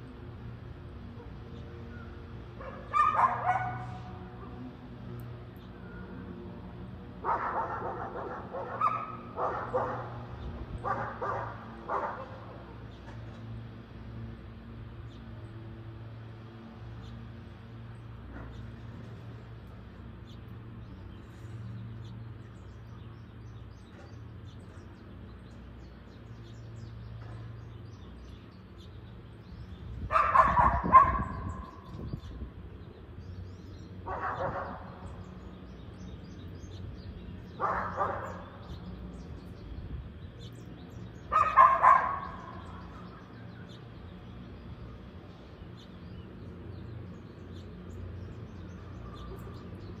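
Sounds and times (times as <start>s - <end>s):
dog barking: 2.6s - 4.0s, 7.2s - 10.2s, 10.8s - 12.4s, 30.1s - 31.4s, 34.1s - 34.9s, 37.6s - 38.4s, 41.3s - 42.6s.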